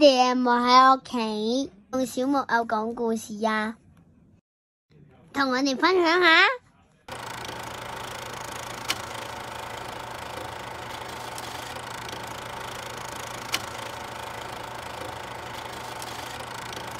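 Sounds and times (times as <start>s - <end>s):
film projector whirring: 7.1s - 16.9s
sharp projector clicks: 7.1s - 16.9s.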